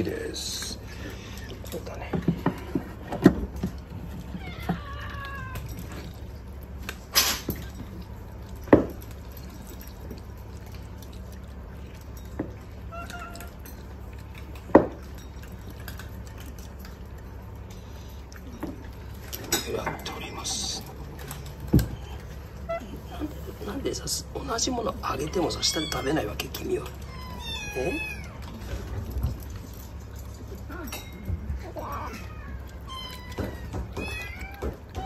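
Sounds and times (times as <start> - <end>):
cat meowing: 4.2 - 6.0, 12.8 - 13.6, 24.9 - 28.6, 31.7 - 35.0.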